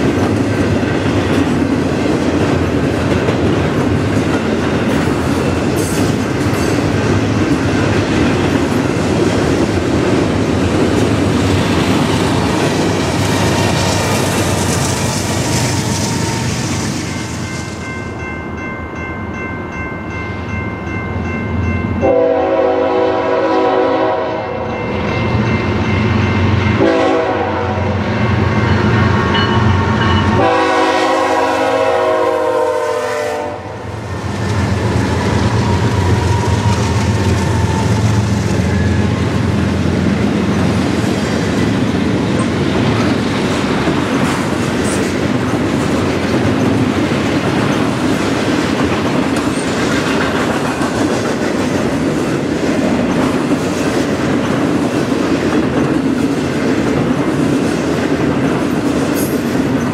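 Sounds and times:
freight cars rumbling: 0.0 - 18.0, 33.7 - 59.9
train air horn blasts: 22.0 - 24.8, 26.8 - 28.0, 30.2 - 34.3.

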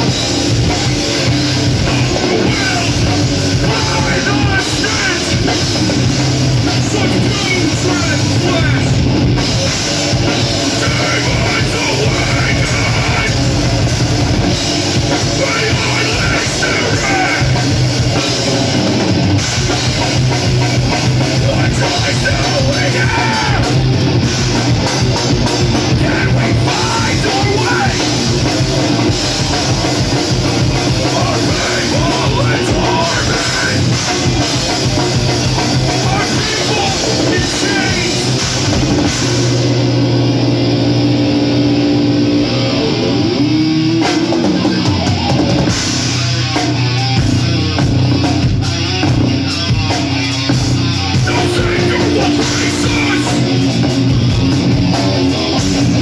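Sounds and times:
heavy metal band playing live: 0.0 - 56.0
person singing into microphone: 1.9 - 5.4, 15.3 - 17.6, 25.9 - 28.1, 30.9 - 34.0, 35.9 - 38.3, 51.2 - 53.7.

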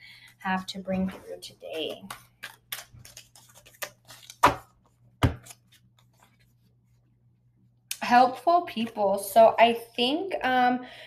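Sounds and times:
cards being shuffled: 1.7 - 6.5.

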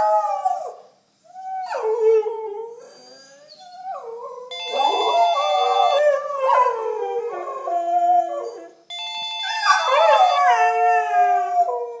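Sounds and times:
dogs howling: 1.4 - 8.8, 9.6 - 12.0
phone ringtone: 4.5 - 6.0, 8.9 - 10.6.

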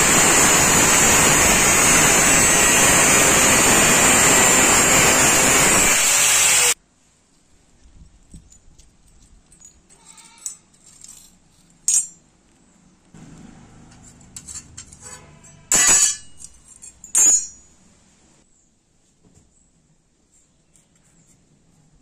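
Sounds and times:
metal pieces scraping on concrete: 13.9 - 17.6
sharp metal clanks: 13.9 - 17.9.

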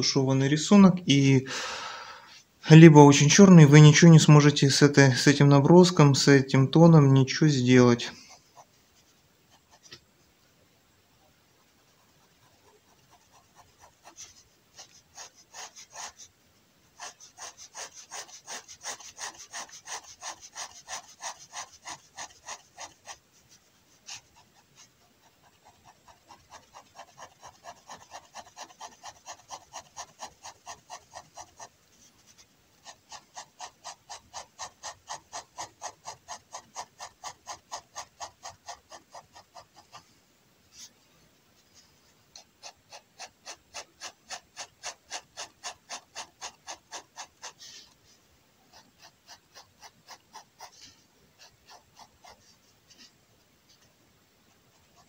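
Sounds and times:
pen scratching on paper: 6.8 - 10.0, 11.8 - 16.3, 16.9 - 40.1, 41.7 - 53.9, 54.7 - 55.0.

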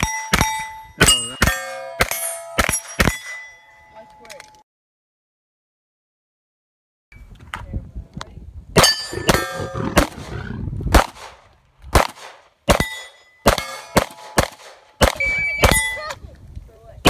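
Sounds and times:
steel plate ringing clang: 0.0 - 4.3, 8.8 - 9.6, 12.8 - 14.4
handgun shots: 12.0 - 15.9.

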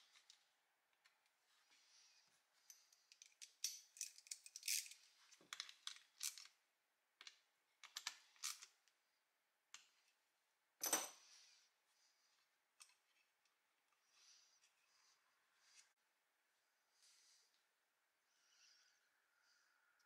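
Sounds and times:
metal parts clicking and scraping: 2.7 - 6.6.

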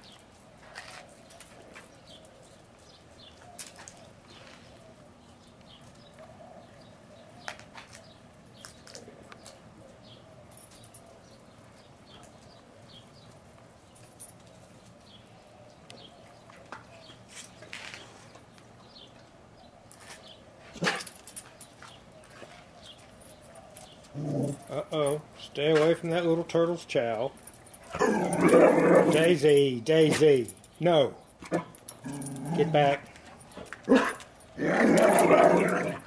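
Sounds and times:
turtles crunching dry kibble: 0.0 - 10.2, 31.6 - 36.0.

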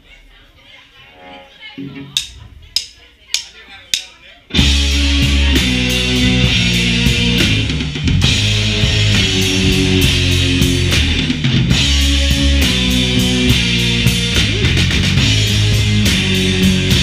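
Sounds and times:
drumstick click: 2.1 - 4.2
live rock band: 4.5 - 17.0.

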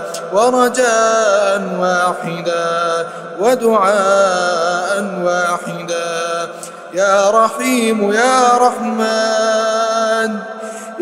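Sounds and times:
man chanting melodically: 0.0 - 11.0.

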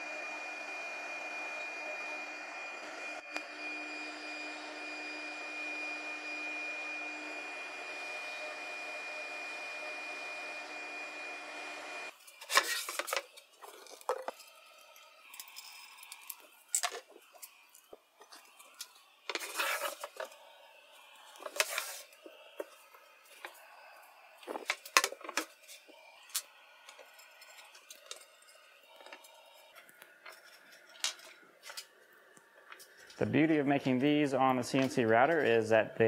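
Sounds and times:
router spindle whining: 0.0 - 35.6
plywood sheet sliding on metal: 21.4 - 22.2.

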